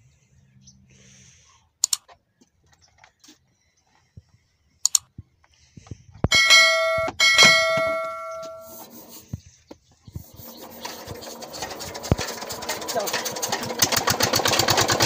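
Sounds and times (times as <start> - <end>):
metal part ringing when struck: 6.3 - 8.7.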